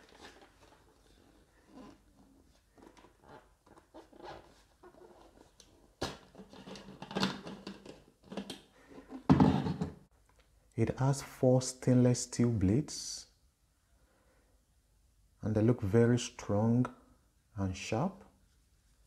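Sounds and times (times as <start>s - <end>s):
plastic blender jug handling: 6.0s - 10.0s.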